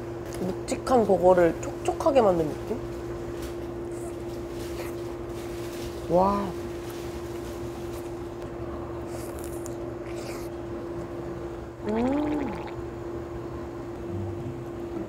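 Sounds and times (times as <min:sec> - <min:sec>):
crisp smacking noises: 0:02.4 - 0:11.1
person chewing: 0:09.1 - 0:10.6
low hum: 0:11.3 - 0:15.0
person humming mmm: 0:11.8 - 0:12.8, 0:14.0 - 0:15.0.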